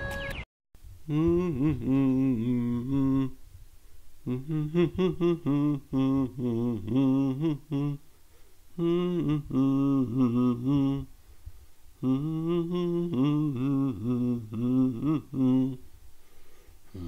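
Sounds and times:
man singing unaccompanied: 1.0s - 3.6s, 4.2s - 8.1s, 8.7s - 11.2s, 12.0s - 16.0s.

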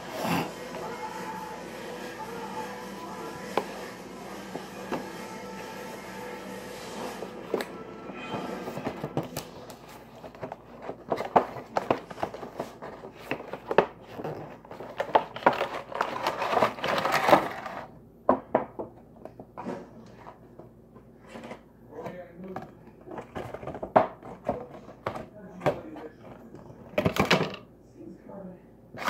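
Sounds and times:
packaging crinkling and clicking: 9.2s - 17.9s.

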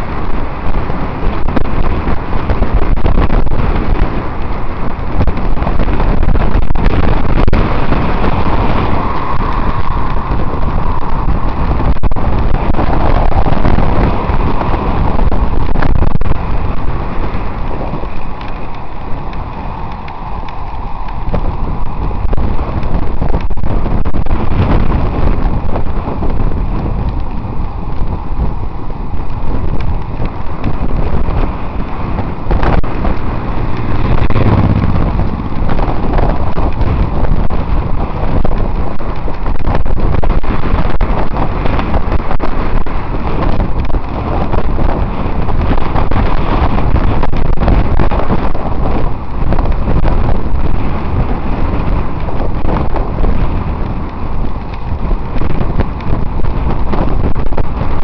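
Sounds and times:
loud wind buffeting microphone: 0.0s - 58.0s.

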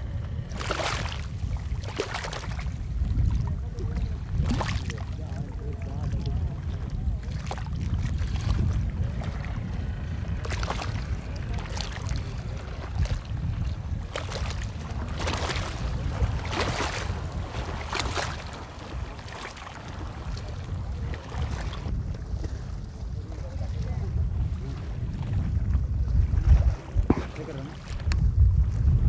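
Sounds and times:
water splashing and sloshing: 0.0s - 29.0s
wind noise on microphone: 0.0s - 29.0s.

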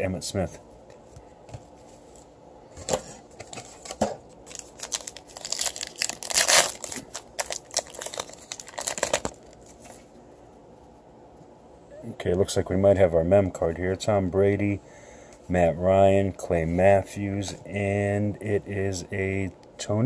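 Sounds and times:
plastic wrapper crinkling and tearing: 4.4s - 9.9s.

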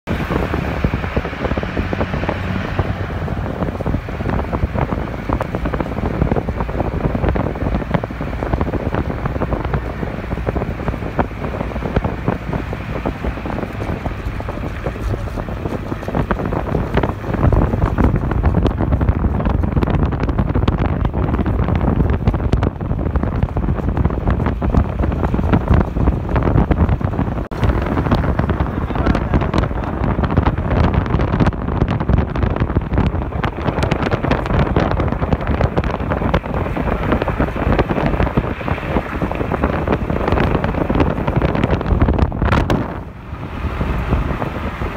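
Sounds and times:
car driving on highway: 0.0s - 44.9s
wind buffeting microphone: 0.0s - 44.9s.

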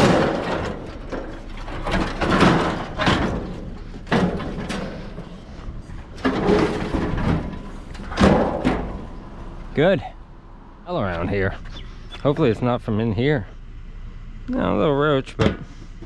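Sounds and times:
scrap metal banging and clattering: 0.0s - 9.7s.

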